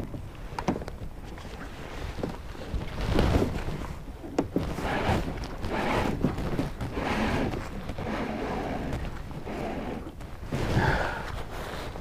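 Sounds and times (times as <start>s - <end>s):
gear rustling and bumping: 0.6s - 8.1s.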